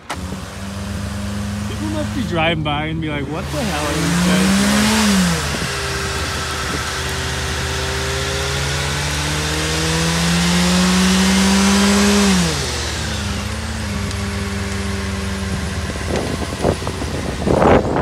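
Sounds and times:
tyres spinning hiss: 0:00.0 - 0:09.6
car engine revving in burnout: 0:00.0 - 0:18.0.

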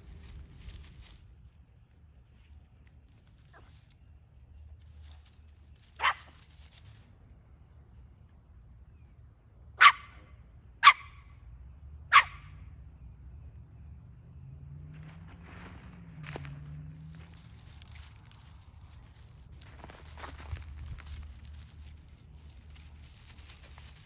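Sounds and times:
dog barking: 0:06.0 - 0:06.3, 0:09.8 - 0:10.2, 0:10.8 - 0:11.2, 0:12.1 - 0:12.5.

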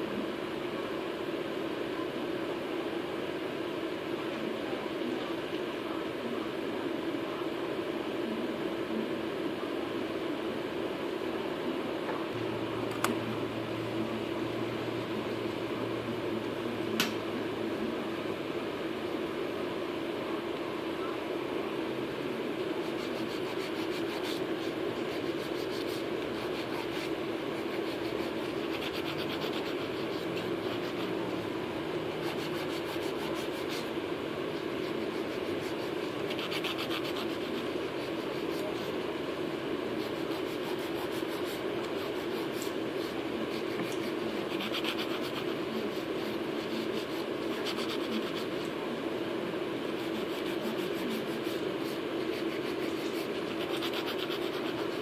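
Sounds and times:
steady low hum: 0:00.0 - 0:55.0
nail file rasping: 0:25.1 - 0:31.1, 0:32.2 - 0:33.9, 0:35.0 - 0:38.6, 0:43.6 - 0:45.6, 0:46.4 - 0:48.7, 0:49.9 - 0:55.0.

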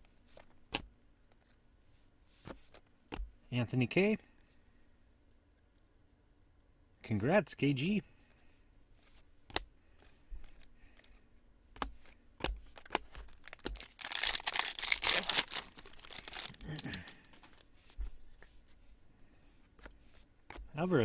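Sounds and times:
foil pack tearing: 0:13.4 - 0:17.2.

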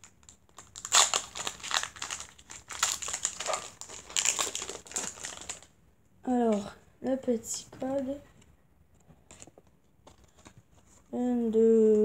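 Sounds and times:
foil pack tearing and crinkling: 0:00.0 - 0:05.7.

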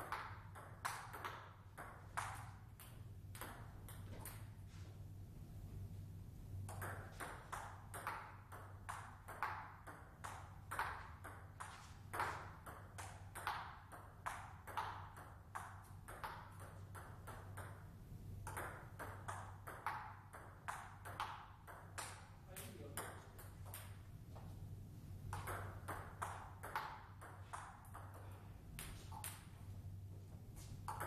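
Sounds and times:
table tennis ball clicking: 0:00.0 - 0:04.5, 0:06.6 - 0:24.1, 0:25.3 - 0:28.2.

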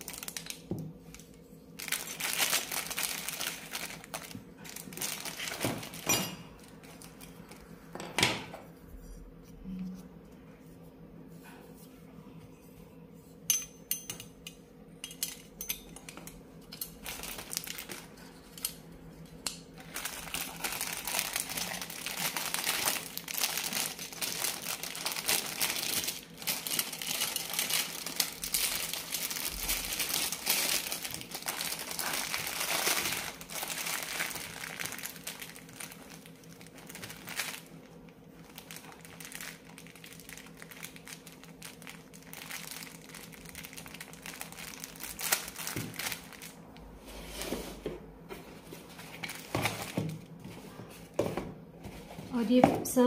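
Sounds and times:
plastic packaging crinkling: 0:00.0 - 0:07.8, 0:16.8 - 0:18.6, 0:19.3 - 0:47.0, 0:48.5 - 0:50.3.

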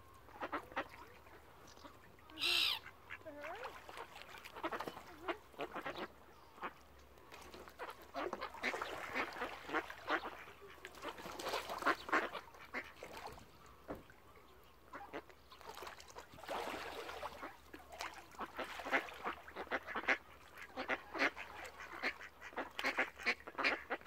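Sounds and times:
ducks quacking: 0:00.3 - 0:06.8, 0:07.5 - 0:13.4, 0:17.3 - 0:24.0.

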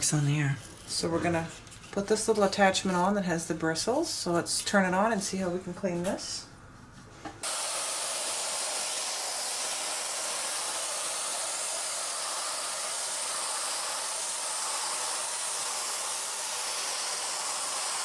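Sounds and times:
vacuum cleaner hissing: 0:07.4 - 0:18.0.

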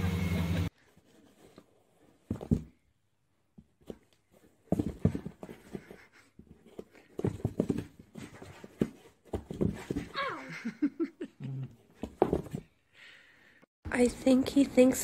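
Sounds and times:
cardboard box thumping and scuffing: 0:02.2 - 0:02.8, 0:04.7 - 0:05.9, 0:07.2 - 0:10.1.

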